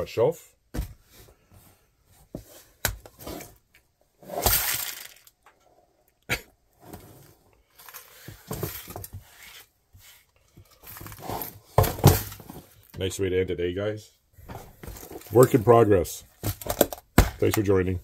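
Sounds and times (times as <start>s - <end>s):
parts rattling: 4.4s - 5.6s, 10.6s - 12.9s
small components clattering: 4.4s - 5.6s.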